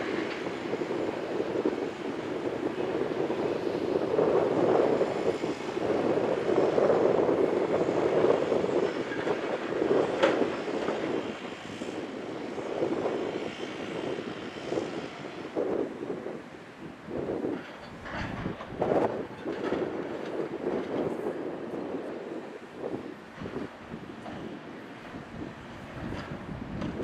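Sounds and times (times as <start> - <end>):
excavator diesel engine and hydraulics: 0.0 - 27.0.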